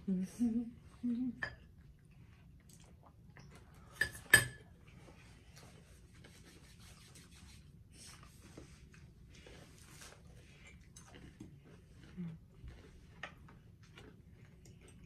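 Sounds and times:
faint chewing: 0:00.8 - 0:04.0, 0:08.0 - 0:15.0
mouth and rubbing noises: 0:05.0 - 0:13.4.

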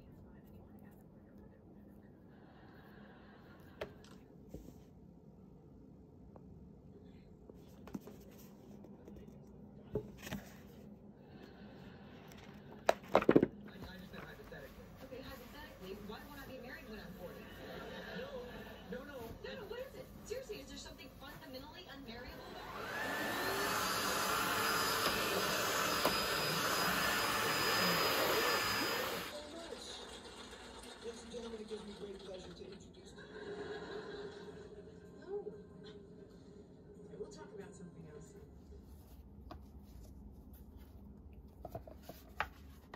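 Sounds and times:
book and case knocking on desk: 0:12.8 - 0:13.6
vacuum cleaner running on carpet: 0:13.9 - 0:29.4.

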